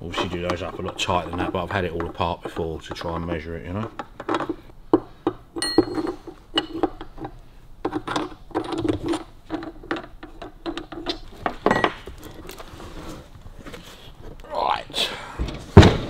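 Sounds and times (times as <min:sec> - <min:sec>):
ringing metal tink: 0:05.6 - 0:06.2
metal spanner clinking: 0:05.6 - 0:06.8.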